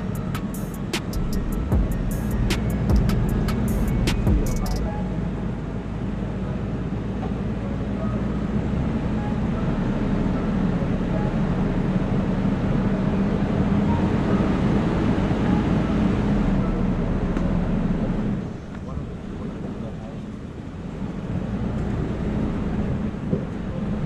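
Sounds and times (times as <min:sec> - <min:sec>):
vehicle engine running: 0:00.0 - 0:24.0
sharp clicks: 0:00.4 - 0:01.6.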